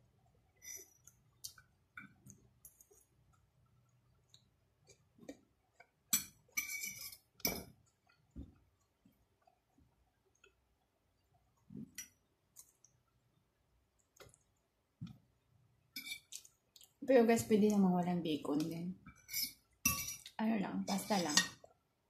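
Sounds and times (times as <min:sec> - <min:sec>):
fork clinking against plate: 0:19.2 - 0:20.3.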